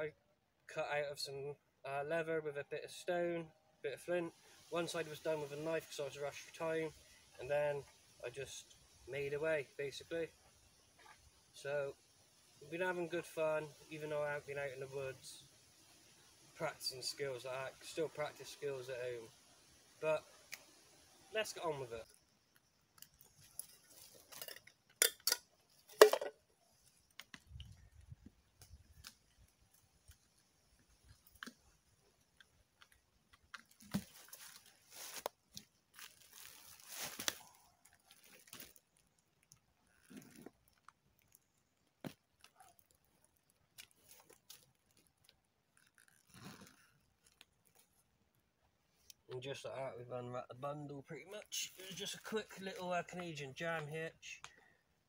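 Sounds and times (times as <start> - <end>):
canvas rustling: 33.6 - 48.0.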